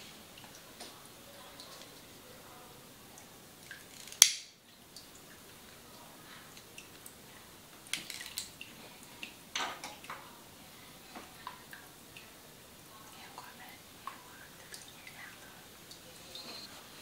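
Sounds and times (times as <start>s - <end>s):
soft clicks and rustles of hair: 7.8s - 10.3s.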